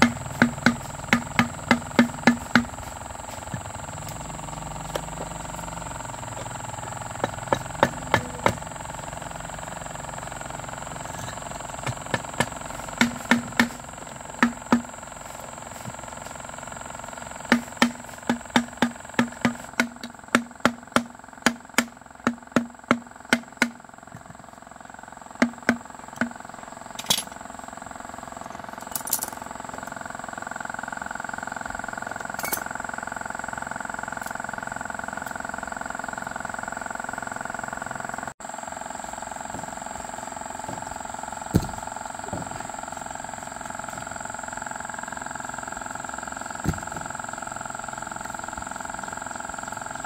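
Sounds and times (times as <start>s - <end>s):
hammering on metal: 0.0s - 2.7s, 7.2s - 8.7s
small electric motor humming: 0.0s - 50.0s.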